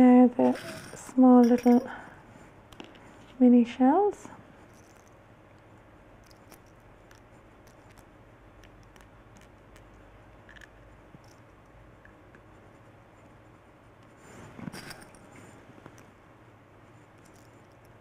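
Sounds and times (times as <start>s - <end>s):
low steady hum: 0.0s - 18.0s
seashells clicking and tapping: 4.7s - 12.5s.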